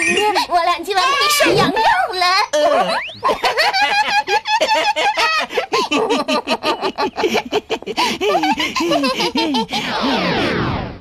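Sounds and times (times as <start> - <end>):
high-pitched cartoon laugh: 2.6 - 10.2
deep cartoon laugh: 2.6 - 10.4.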